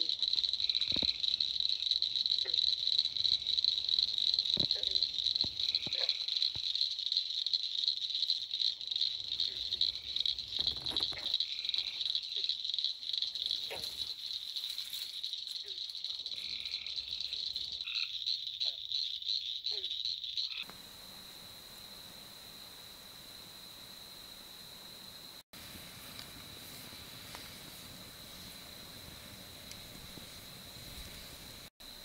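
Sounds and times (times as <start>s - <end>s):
frog chirps: 0.0s - 20.7s
frogs trilling: 0.0s - 20.8s.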